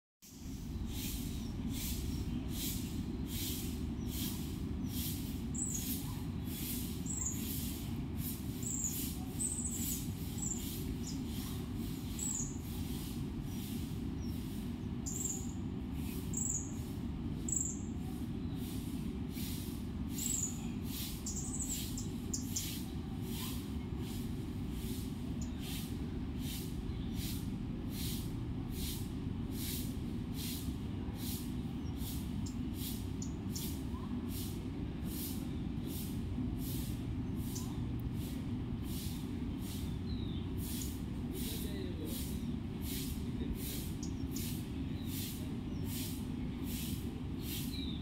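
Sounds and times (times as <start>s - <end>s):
high bird chirps: 4.9s - 6.1s, 7.0s - 7.7s, 8.6s - 14.4s, 15.0s - 18.0s, 20.1s - 22.8s.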